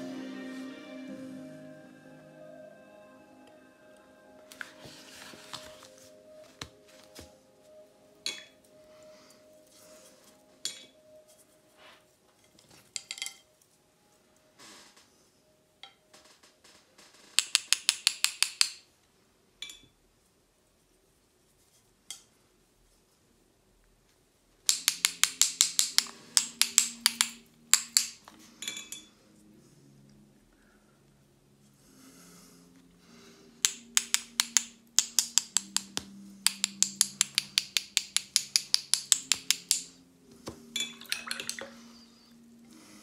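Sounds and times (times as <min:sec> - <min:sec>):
paintbrush clinking against glass: 0:40.8 - 0:42.3.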